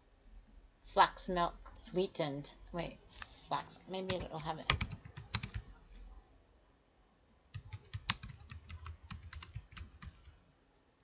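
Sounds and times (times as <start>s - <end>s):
computer keyboard typing: 4.0s - 6.0s, 7.5s - 10.4s.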